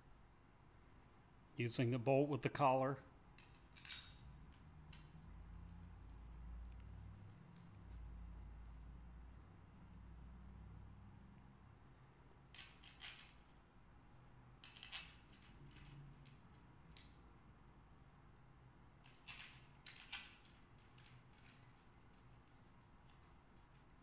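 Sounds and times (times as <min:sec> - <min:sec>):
metallic clicks and clinks: 0:03.4 - 0:06.4, 0:12.5 - 0:13.5, 0:14.6 - 0:17.2, 0:19.0 - 0:23.9.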